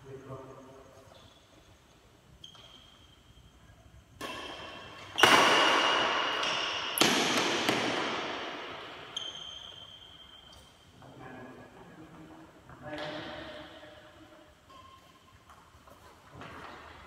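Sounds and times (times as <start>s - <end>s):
rackets hitting shuttlecock with echo: 4.2s - 10.5s, 12.9s - 15.6s.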